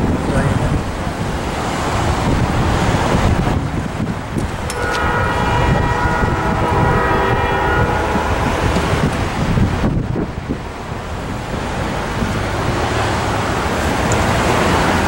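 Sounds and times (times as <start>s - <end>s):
train rumbling: 0.0s - 15.0s
wind buffeting microphone: 0.0s - 15.0s
distant locomotive air horn: 4.7s - 9.6s.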